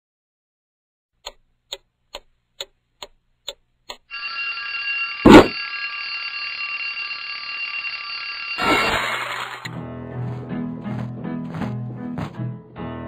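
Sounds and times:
alarm clock ticking: 1.2s - 5.6s
alarm clock ringing: 4.1s - 9.8s
loud thump: 5.3s - 5.6s.

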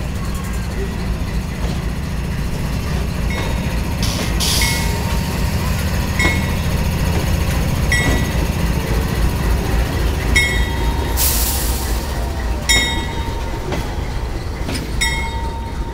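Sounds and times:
locomotive engine rumble: 0.0s - 15.9s
wheels clicking on track: 0.0s - 15.9s
hiss burst: 11.2s - 12.2s.

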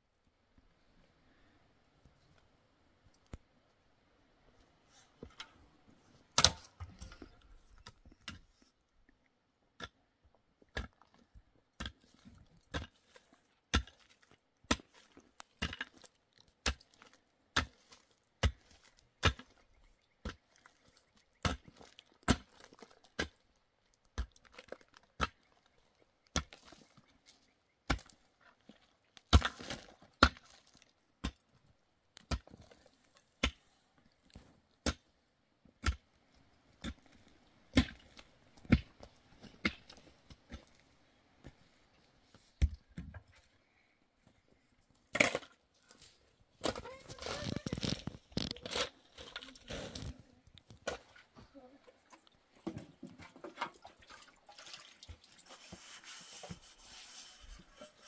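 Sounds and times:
pickaxe striking ground: 6.4s - 6.9s, 37.7s - 39.0s.

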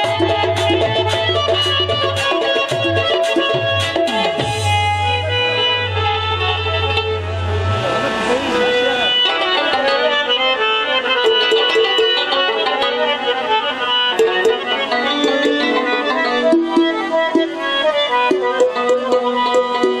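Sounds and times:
hand drum strokes: 0.0s - 10.3s
reedy wind instrument melody: 0.0s - 20.0s.

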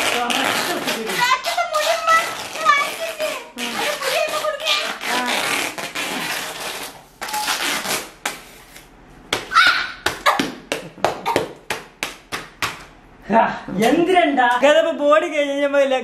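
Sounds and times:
duct tape ripping off roll: 0.0s - 8.9s.

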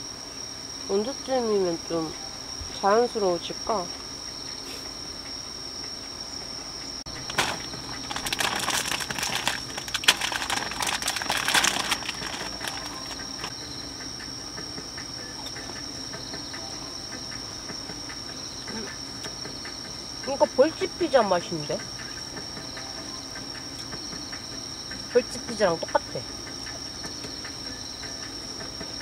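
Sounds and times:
crickets trilling: 0.0s - 29.0s
hands rustling and crackling: 7.1s - 13.5s.

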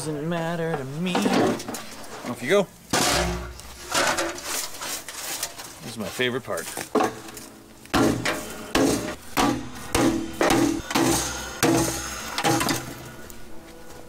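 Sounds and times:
hammer striking scrap metal: 2.9s - 4.5s, 6.9s - 13.2s.

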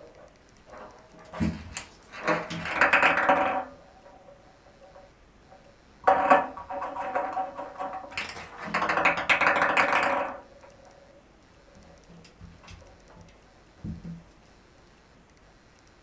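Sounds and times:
ping pong ball clattering in bathtub: 0.7s - 5.1s, 6.0s - 10.8s.

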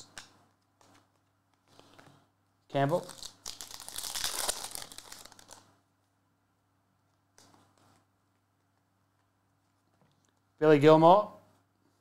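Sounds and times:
foil wrapper tearing and crinkling: 3.0s - 5.7s
soft rustle: 5.0s - 10.6s.

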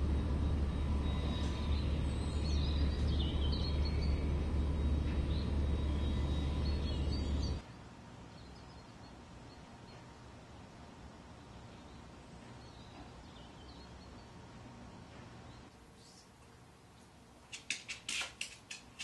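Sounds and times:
birds chirping: 0.0s - 7.6s, 8.3s - 16.2s
low rumble: 0.0s - 7.6s.

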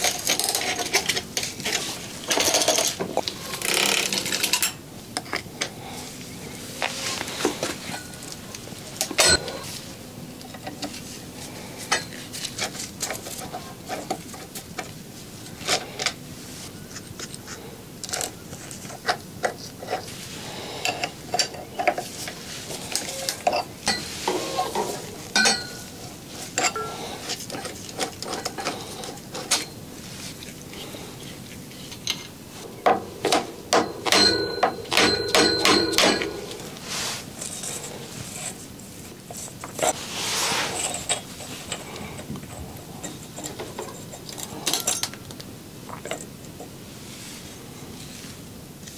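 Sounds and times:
metal tools clicking and scraping: 0.0s - 5.7s, 7.4s - 9.7s, 20.8s - 29.8s, 31.7s - 36.8s, 40.8s - 46.3s
ringing metal clinks: 33.9s - 36.6s.

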